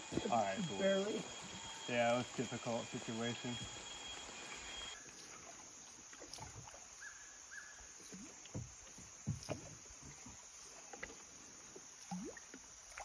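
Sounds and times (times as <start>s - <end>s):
water plopping against boat hull: 5.1s - 6.8s, 8.0s - 13.0s.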